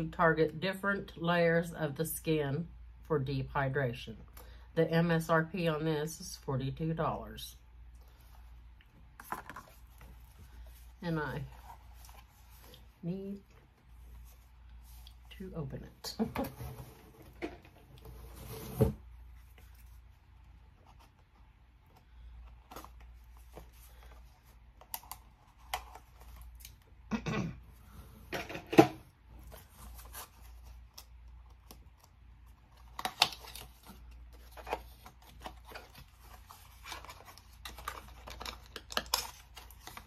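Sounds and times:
packaging rustling and tearing: 0:29.5 - 0:40.0.

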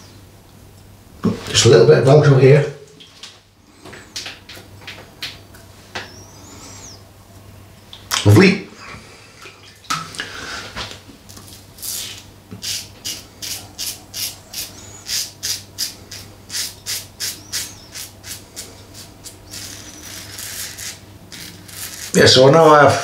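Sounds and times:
razor scraping stubble: 0:11.8 - 0:23.0.

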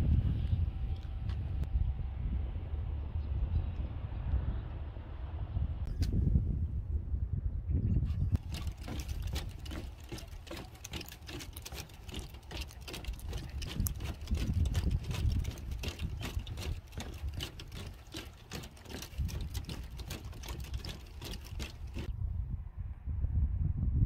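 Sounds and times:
steady low rumble: 0:00.0 - 0:24.0
rapid clicking and tapping: 0:08.4 - 0:22.1.

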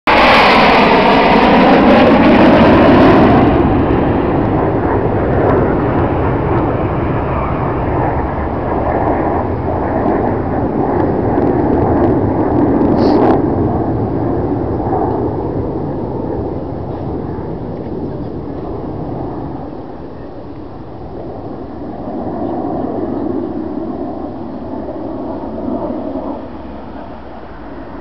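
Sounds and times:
jets flying past: 0:00.1 - 0:28.0.

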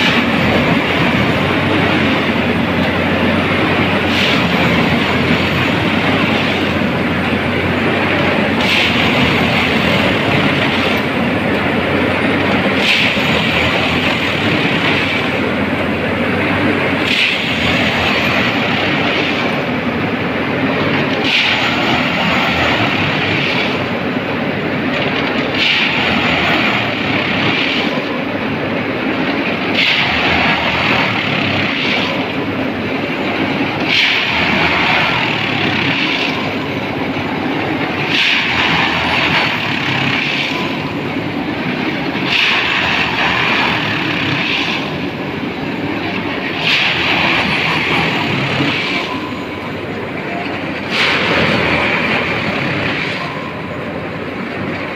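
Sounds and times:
engine and hydraulic noise: 0:00.0 - 0:54.9
hissing grinding tamping surge: 0:00.0 - 0:54.9.

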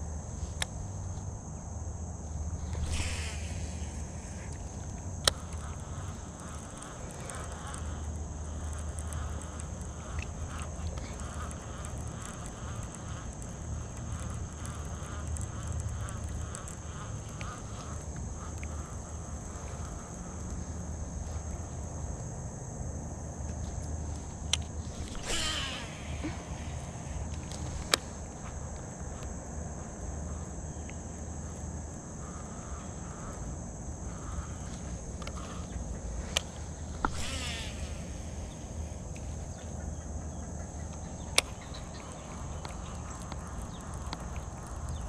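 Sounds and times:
high insect buzz: 0:00.0 - 0:45.0
fishing reel spool whirring: 0:02.4 - 0:22.2, 0:24.0 - 0:29.3, 0:30.2 - 0:45.0
sharp clicks: 0:02.7 - 0:20.6, 0:23.8 - 0:29.3, 0:34.1 - 0:39.8, 0:40.8 - 0:45.0.

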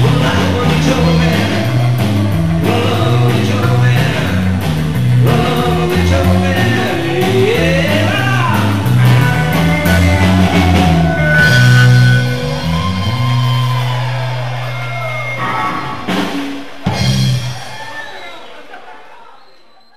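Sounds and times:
man singing: 0:00.0 - 0:12.2
live rock band playing: 0:00.0 - 0:18.2
drumming: 0:00.0 - 0:18.8.

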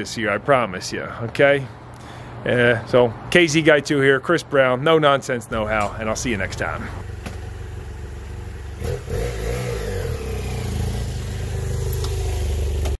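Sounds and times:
motorcycle engine running: 0:05.5 - 0:13.0.

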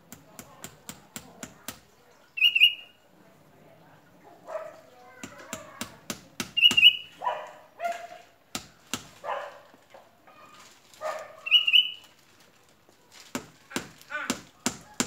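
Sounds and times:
hammer knocking on tree trunk: 0:05.2 - 0:06.9, 0:08.5 - 0:09.1, 0:13.3 - 0:15.0.

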